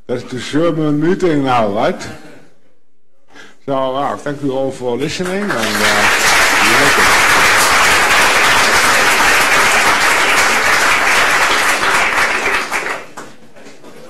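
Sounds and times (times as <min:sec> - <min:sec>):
audience applauding: 0:05.2 - 0:13.5.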